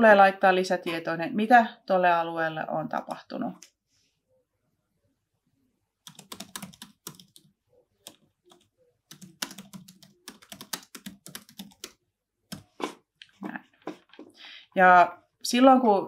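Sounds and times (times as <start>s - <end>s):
computer keyboard typing: 6.0s - 12.8s.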